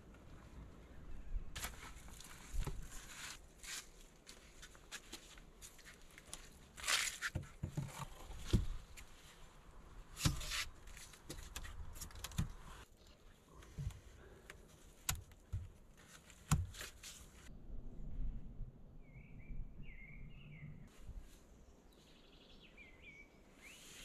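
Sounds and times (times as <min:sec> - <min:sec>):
rustling of bark and dry leaves: 0:01.6 - 0:17.5
logs thumping on ground: 0:06.9 - 0:09.0, 0:16.4 - 0:17.0.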